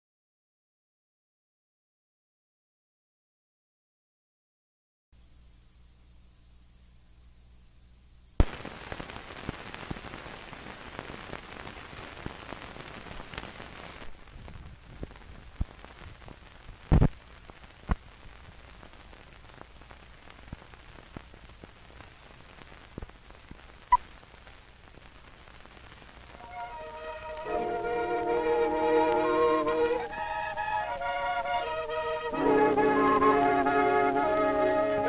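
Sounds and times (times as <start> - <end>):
film soundtrack crackle and hiss: 5.2 - 35.0.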